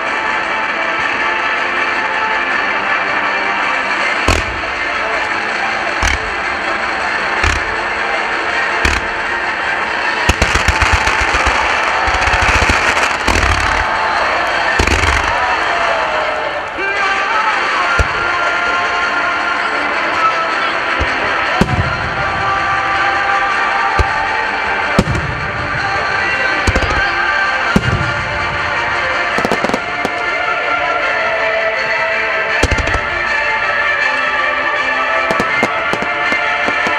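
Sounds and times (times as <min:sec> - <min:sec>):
loud music: 0:00.0 - 0:36.9
firework booms: 0:04.3 - 0:05.2, 0:06.0 - 0:09.6, 0:10.2 - 0:16.2, 0:17.7 - 0:19.1, 0:20.8 - 0:30.5, 0:32.6 - 0:33.5, 0:35.2 - 0:36.9
rapid firework launches: 0:06.0 - 0:06.4.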